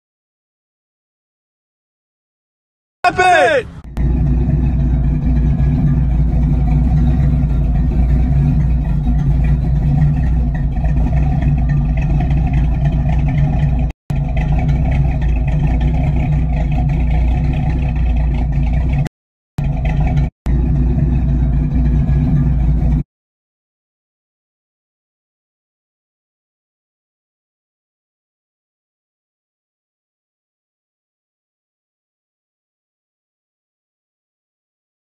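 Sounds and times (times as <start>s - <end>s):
pickup truck engine running: 3.1s - 23.0s.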